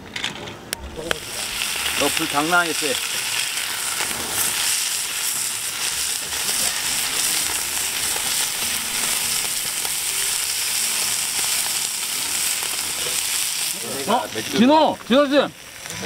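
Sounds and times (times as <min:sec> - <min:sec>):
food sizzling in pans: 0:00.8 - 0:16.0.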